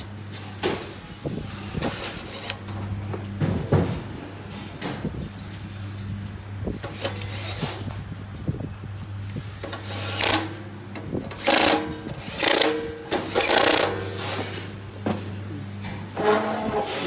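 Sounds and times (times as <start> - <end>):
metal scraping on metal: 16.1 - 17.0.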